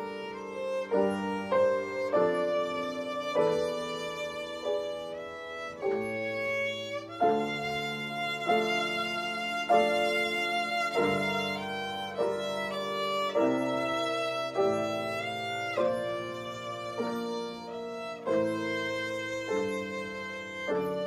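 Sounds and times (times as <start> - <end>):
piano accompaniment: 0.0 - 21.0
violin playing slow melody: 0.0 - 21.0.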